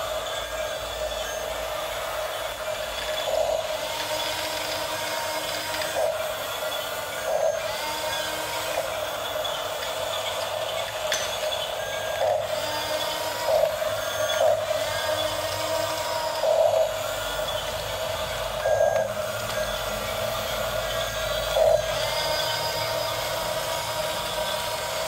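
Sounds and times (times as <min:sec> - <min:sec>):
toy bulldozer motors whining: 0:00.0 - 0:25.0.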